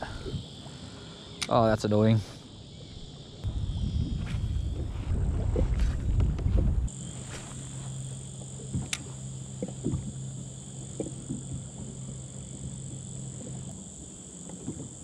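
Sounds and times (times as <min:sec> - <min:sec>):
fishing reel whirring: 0:06.9 - 0:15.0.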